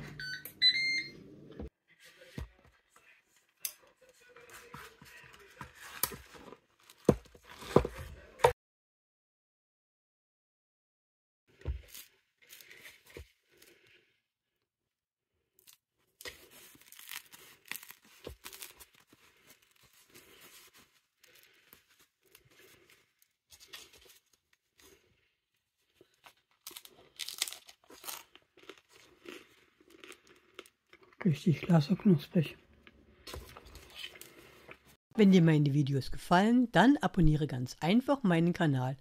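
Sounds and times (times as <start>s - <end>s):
bread crust crackling: 15.6s - 31.0s.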